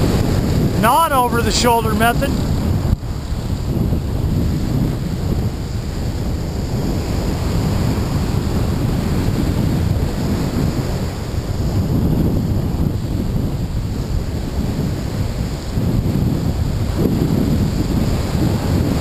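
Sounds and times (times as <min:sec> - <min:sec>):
breaking surf: 0:00.8 - 0:02.4
wind buffeting microphone: 0:01.7 - 0:19.0.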